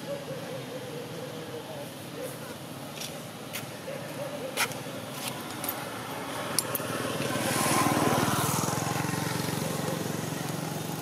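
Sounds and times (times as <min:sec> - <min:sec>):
small engine passing by: 0:05.5 - 0:11.0.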